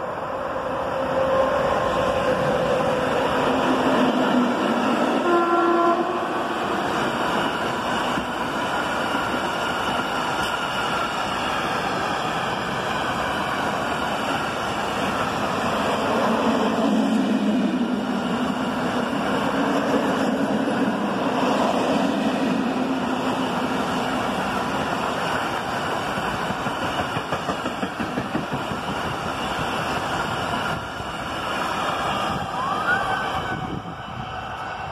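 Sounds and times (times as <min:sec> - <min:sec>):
train wheels rumbling on rails: 0:00.0 - 0:34.9.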